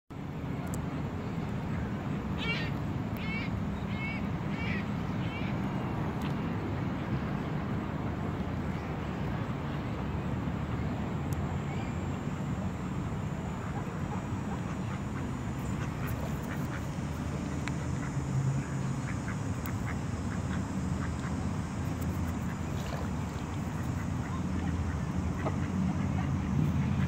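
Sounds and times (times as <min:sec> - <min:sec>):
ducks quacking: 0:13.6 - 0:18.2.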